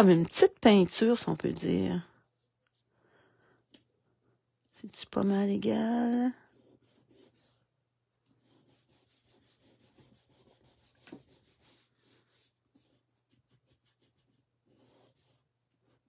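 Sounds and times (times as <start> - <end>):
hands rubbing paper: 6.1 - 7.7, 8.3 - 16.0.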